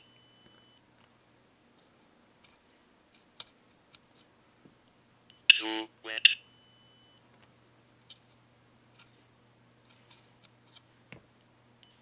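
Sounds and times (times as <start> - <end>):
low electrical hum: 0.0 - 12.0
robotic text-to-speech voice: 5.5 - 6.4.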